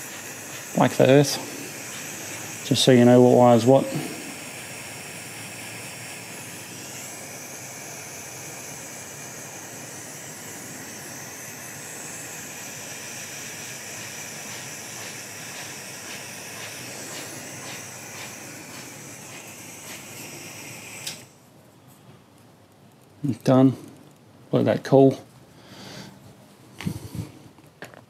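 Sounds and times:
hot-air tool burner hissing: 0:00.0 - 0:21.4, 0:26.8 - 0:27.4.

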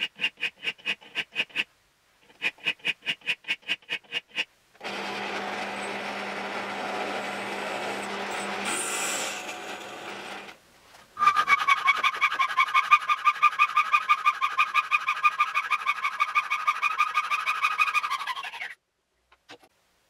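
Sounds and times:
hacksaw cutting metal rod: 0:03.9 - 0:10.6
drill press running: 0:04.8 - 0:10.6.

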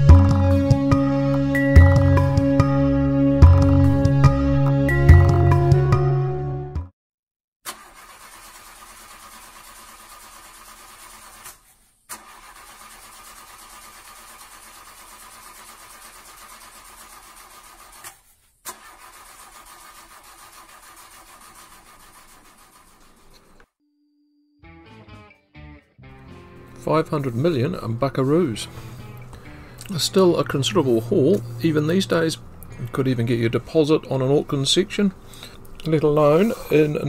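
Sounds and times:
car engine running: 0:26.3 - 0:34.1.

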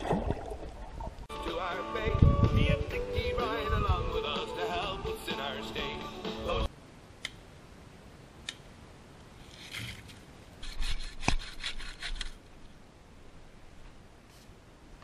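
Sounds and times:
bow saw rasping through log: 0:10.6 - 0:12.3.

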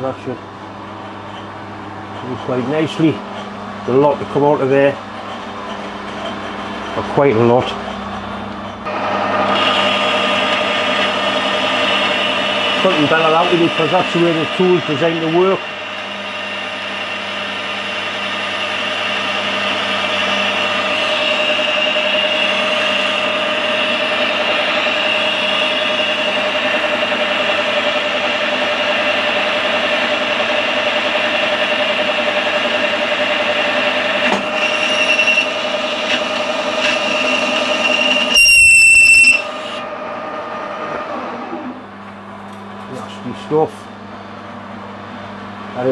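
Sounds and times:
metal lathe cutting whine: 0:00.0 - 0:42.0
lathe tool squeal: 0:09.4 - 0:40.0.

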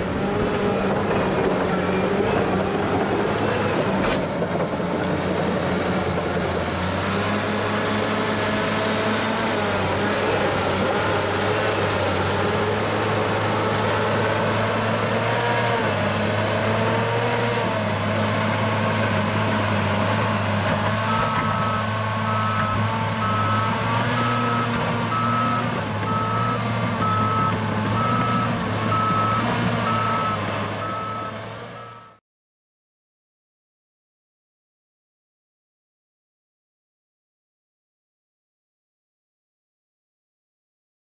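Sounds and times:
diesel engine running: 0:00.0 - 0:32.1
backup alarm beeping: 0:25.1 - 0:32.2.

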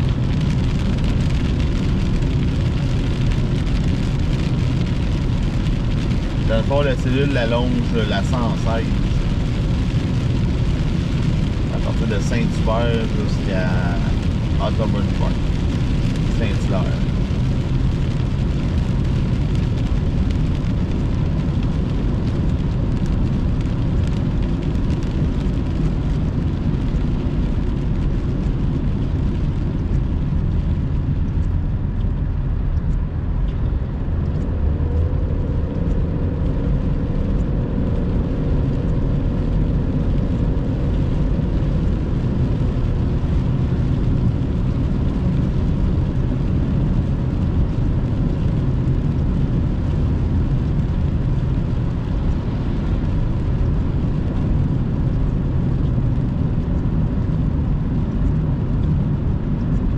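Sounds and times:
car road and engine noise: 0:00.0 - 0:59.9.

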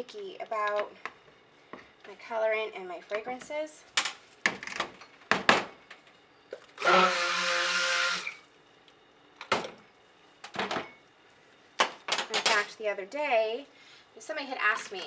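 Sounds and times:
stick blender motor hum: 0:06.8 - 0:08.5.

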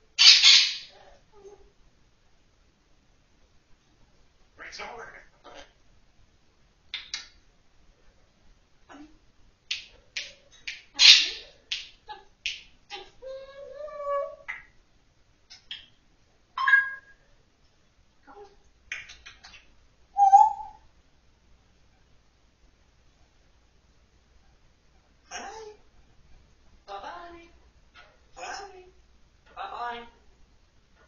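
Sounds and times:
parrot whistling: 0:16.6 - 0:17.2, 0:20.2 - 0:20.8.

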